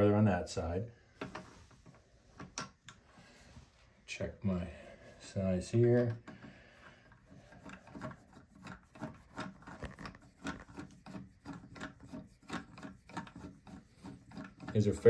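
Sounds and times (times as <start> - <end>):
screwdriver rasping scrape: 6.2 - 15.0.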